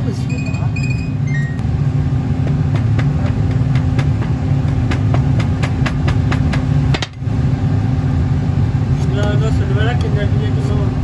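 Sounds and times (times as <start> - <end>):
low machine hum: 0.0 - 11.0
hand rammer pounding sand: 2.4 - 6.7.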